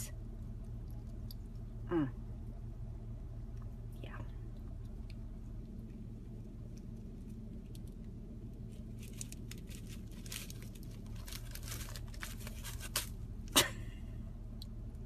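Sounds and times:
steady low hum: 0.0s - 15.0s
plastic bag crinkling: 8.6s - 13.3s.

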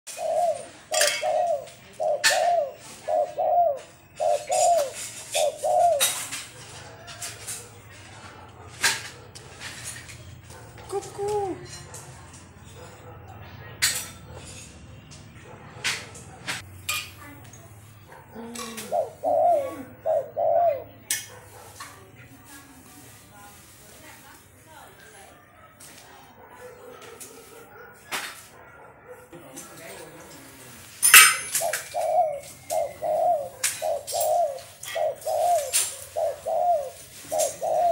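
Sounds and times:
dove cooing: 0.1s - 11.9s, 17.9s - 21.6s, 31.0s - 37.9s.

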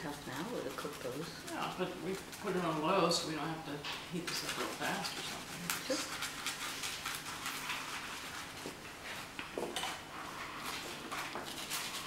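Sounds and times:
garlic scratching on toasted bread: 0.0s - 3.4s, 4.2s - 8.8s.

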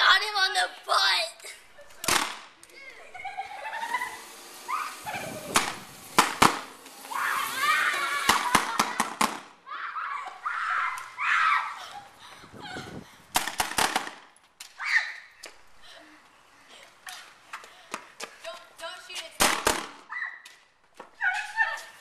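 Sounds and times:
children's voices: 0.0s - 3.9s, 7.0s - 12.8s
bb gun pops: 13.4s - 14.2s.

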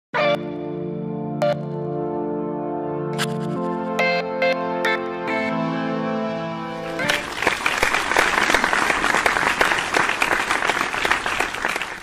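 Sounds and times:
intro music: 0.2s - 9.2s
audience applauding: 7.0s - 12.0s.

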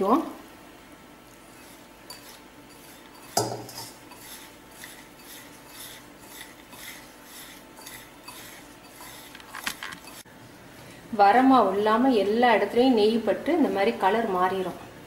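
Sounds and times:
hand rubbing flour in a bowl: 1.4s - 10.2s.

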